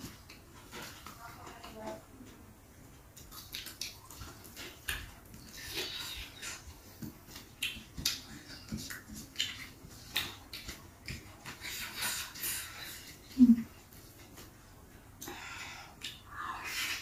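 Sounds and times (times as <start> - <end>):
fingers squelching in oily food: 3.1 - 13.4.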